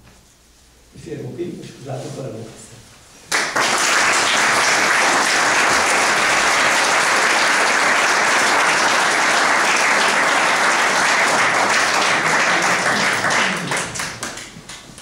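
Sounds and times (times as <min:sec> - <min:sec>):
audience applauding: 0:03.3 - 0:15.0.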